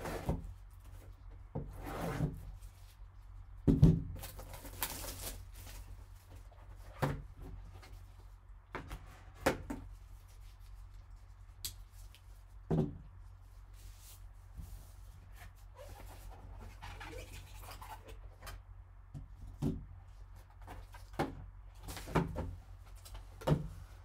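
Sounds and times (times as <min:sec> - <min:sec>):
foil pack tearing: 0:04.2 - 0:06.0.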